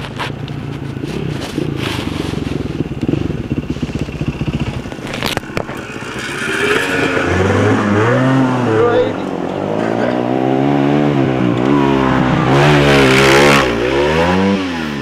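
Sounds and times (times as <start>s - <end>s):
dirt bike climbing a hill: 0.0s - 15.0s
dirt bike engine running steadily: 0.0s - 15.0s.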